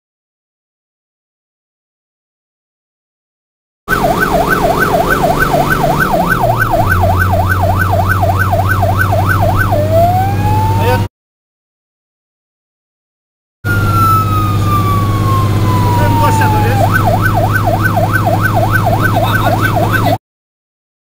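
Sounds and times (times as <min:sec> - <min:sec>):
truck engine running: 0:03.9 - 0:11.0, 0:13.7 - 0:20.2
fire truck siren: 0:03.9 - 0:11.1, 0:13.6 - 0:20.2.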